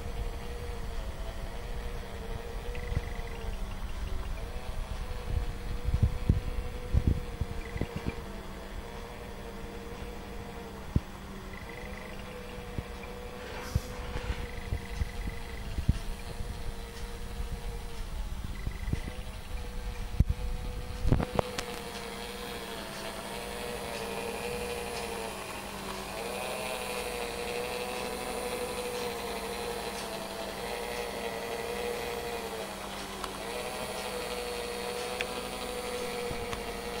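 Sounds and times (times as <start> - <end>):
small electric motor whining hum: 0.0 - 37.0.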